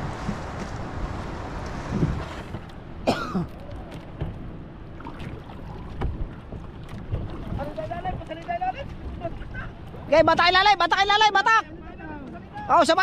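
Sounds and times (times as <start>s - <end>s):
person coughing: 3.1s - 3.5s.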